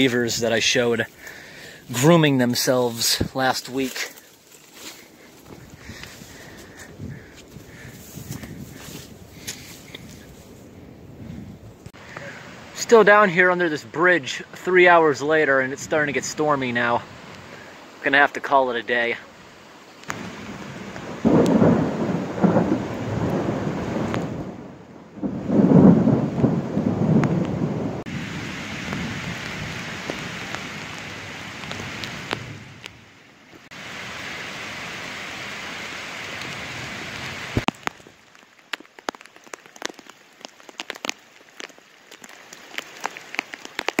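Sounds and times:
raindrops ticking: 0.0s - 10.3s, 20.0s - 24.4s, 28.9s - 33.7s, 37.5s - 44.0s
heavy rain on river: 0.0s - 44.0s
thunder rolling: 20.2s - 30.2s.

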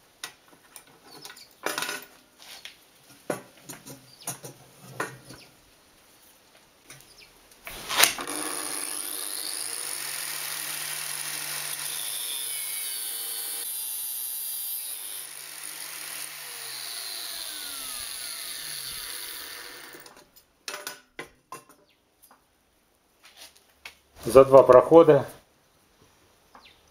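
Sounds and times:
angle grinder cutting steel: 7.7s - 20.2s.

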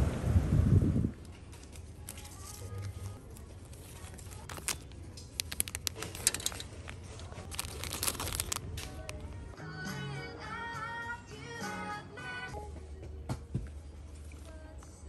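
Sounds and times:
plastic packaging crinkling: 1.6s - 9.3s.

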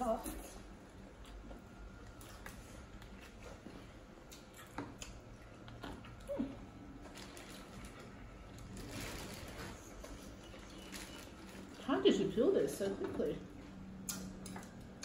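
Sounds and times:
chewing: 1.2s - 8.8s.

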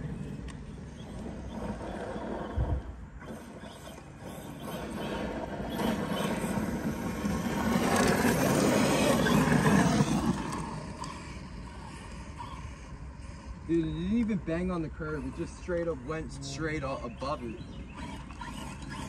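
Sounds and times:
rc truck motor: 0.0s - 19.0s
tyres on loose gravel: 3.2s - 12.9s.

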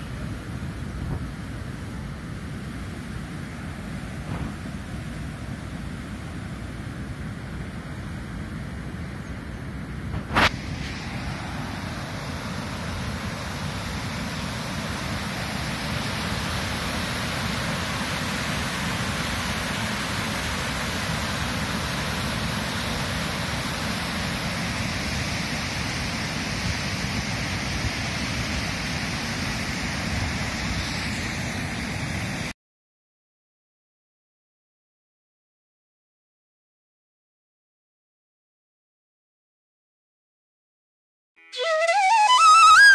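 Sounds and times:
water rushing over weir: 10.1s - 32.5s.

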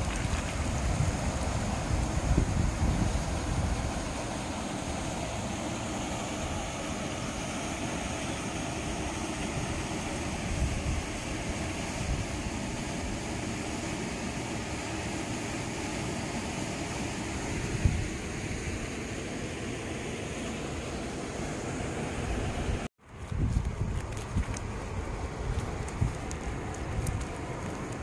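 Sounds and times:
water rushing over a weir: 0.0s - 22.9s.

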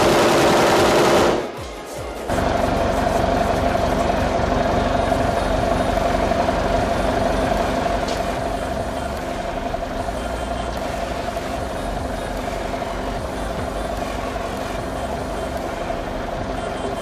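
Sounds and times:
heavy vehicle engine running: 0.0s - 17.0s.

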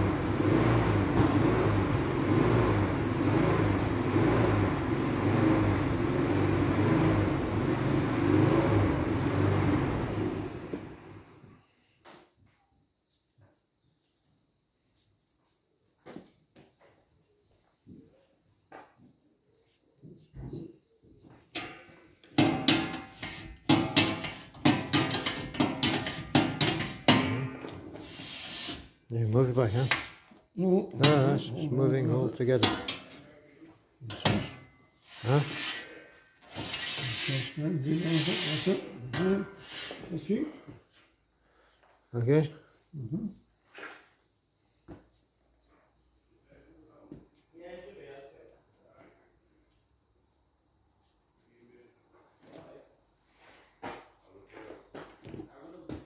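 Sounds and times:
generator engine droning: 0.0s - 11.4s, 22.4s - 27.9s.

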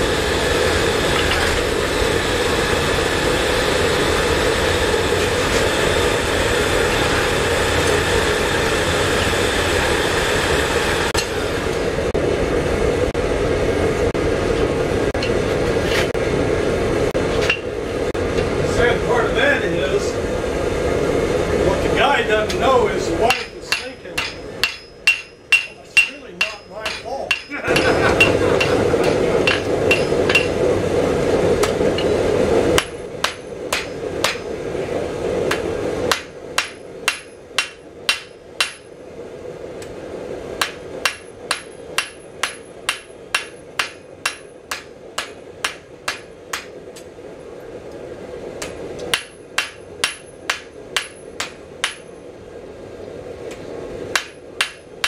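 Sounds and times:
hammer striking on anvil: 23.2s - 30.6s, 32.8s - 34.5s, 35.5s - 38.9s, 40.6s - 46.8s, 48.6s - 52.2s, 54.1s - 55.0s.

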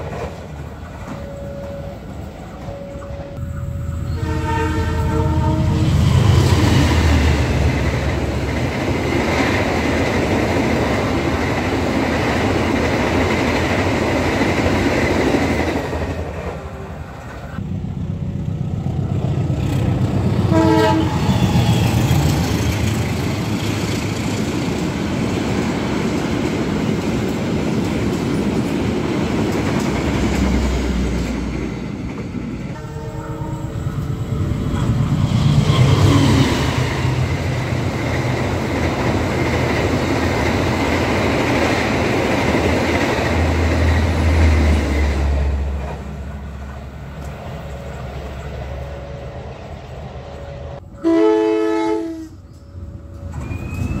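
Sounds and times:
train coaches rumbling on rails: 0.0s - 54.0s
train horn: 1.0s - 6.4s, 20.4s - 22.1s, 32.7s - 34.9s, 50.4s - 52.4s.

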